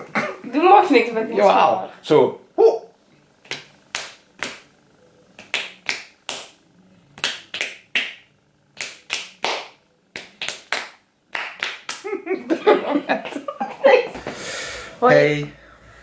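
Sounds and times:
hand claps and palm slaps: 0:03.4 - 0:04.7, 0:05.4 - 0:06.6, 0:07.2 - 0:12.2.

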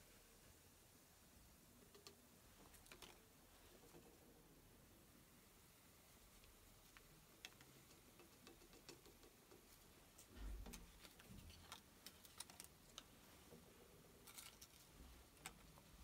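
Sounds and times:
faint light ticks and clicks: 0:06.3 - 0:13.6.

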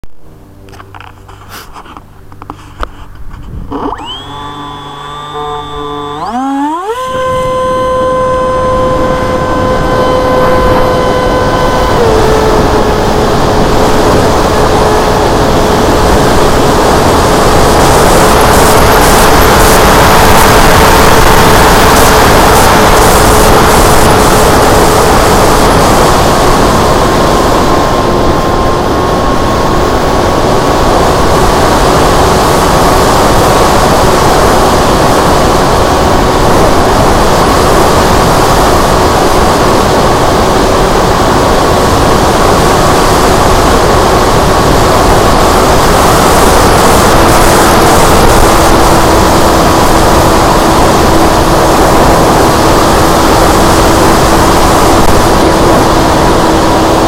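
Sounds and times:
wind rush: 0:01.0 - 0:06.3, 0:06.9 - 0:57.0
electric motor whining: 0:03.1 - 0:57.0.

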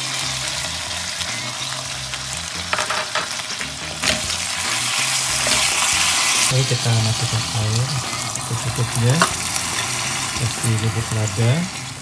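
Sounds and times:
vegetables sizzling in a pan: 0:00.0 - 0:12.0
spatula scraping and knocking pan: 0:02.6 - 0:12.0.

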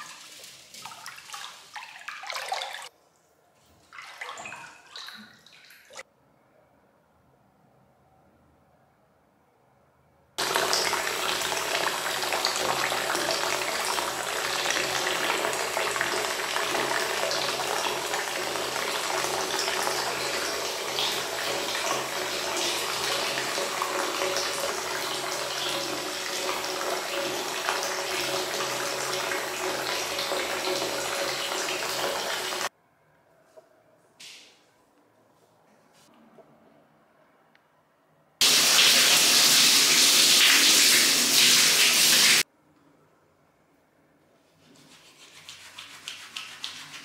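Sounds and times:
water pouring into bathtub: 0:00.0 - 0:02.9, 0:03.9 - 0:06.0, 0:10.4 - 0:32.7, 0:38.4 - 0:42.4.

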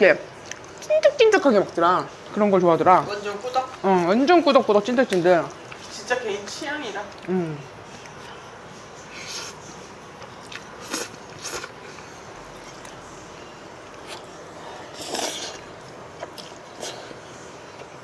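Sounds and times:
chewing: 0:00.2 - 0:18.0
slurping noodles: 0:10.7 - 0:12.2, 0:14.0 - 0:17.2.

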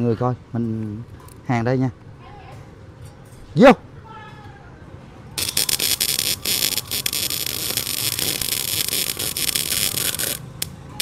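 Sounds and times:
welding arc crackling: 0:05.4 - 0:11.0.

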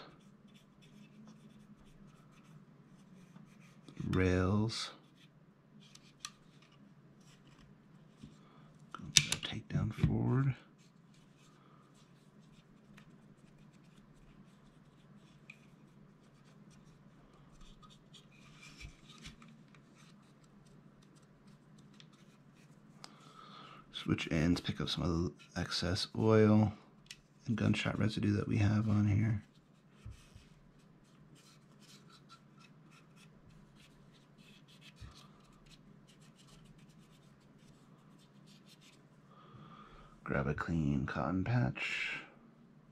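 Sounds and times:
cotton swab rubbing on plastic: 0:00.0 - 0:03.9, 0:10.8 - 0:22.9, 0:27.6 - 0:39.0.

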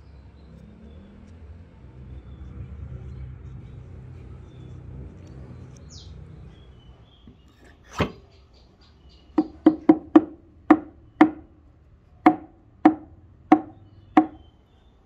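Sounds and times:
sharp woody knocks with ring: 0:12.3 - 0:14.4.

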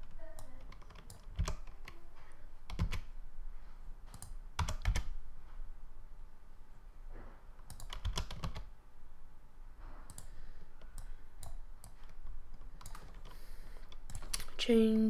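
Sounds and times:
computer keyboard keystrokes: 0:00.0 - 0:02.0, 0:02.6 - 0:03.1, 0:04.1 - 0:05.2, 0:07.6 - 0:08.7, 0:10.1 - 0:14.6.

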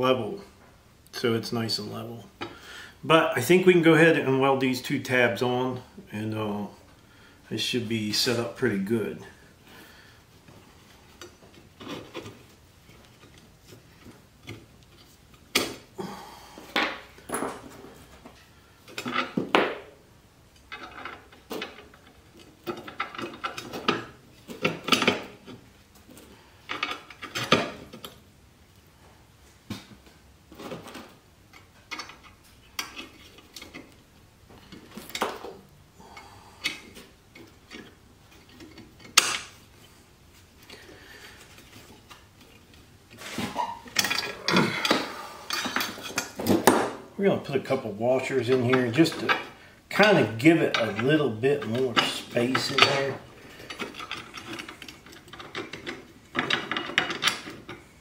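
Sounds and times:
metal clanks and knocks: 0:48.5 - 0:57.8.

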